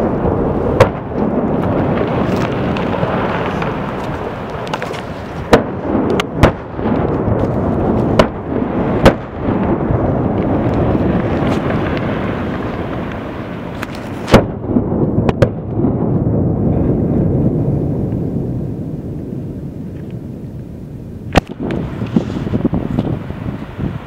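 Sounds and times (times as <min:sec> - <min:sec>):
rock debris rumbling down cliff: 0:00.0 - 0:14.4
sharp rock cracks: 0:01.6 - 0:08.4, 0:13.7 - 0:14.6, 0:21.3 - 0:22.2.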